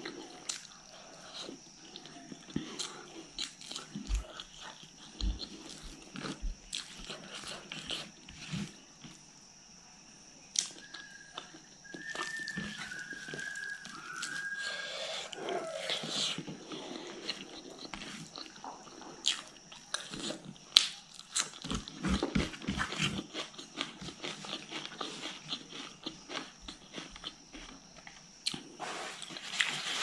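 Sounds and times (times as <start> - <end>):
faint high whine: 0.0 - 21.2.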